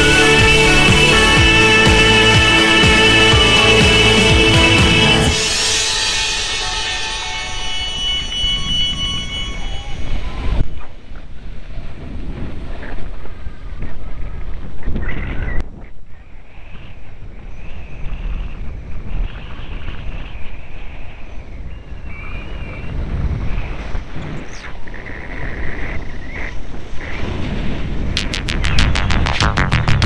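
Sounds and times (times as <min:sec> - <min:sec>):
wind buffeting microphone: 0:08.2 - 0:28.2.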